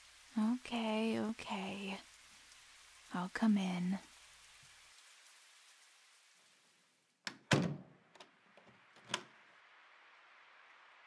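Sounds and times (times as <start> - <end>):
steady rain: 0.0 - 11.0
door thud: 7.3 - 8.0
door latch click: 7.3 - 8.3.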